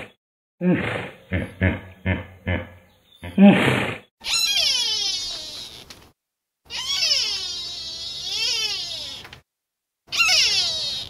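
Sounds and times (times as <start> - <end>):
deer whining calls: 4.2 - 5.9, 6.7 - 9.3, 10.1 - 11.0.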